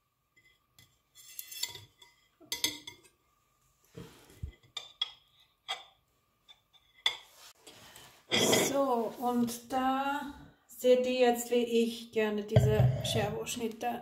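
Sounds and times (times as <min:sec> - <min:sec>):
cutlery clinking on plate: 0:01.4 - 0:03.1.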